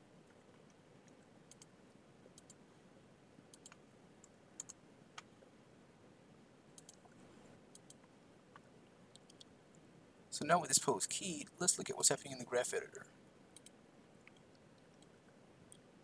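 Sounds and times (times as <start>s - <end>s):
background hiss: 0.0s - 16.0s
computer mouse clicks: 0.2s - 2.6s, 3.5s - 5.3s, 6.8s - 9.8s, 13.5s - 15.9s.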